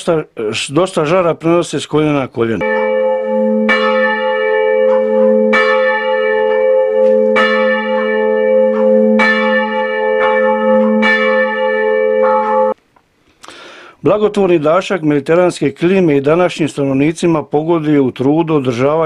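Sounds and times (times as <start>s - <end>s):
church bell tolling: 2.6s - 12.8s.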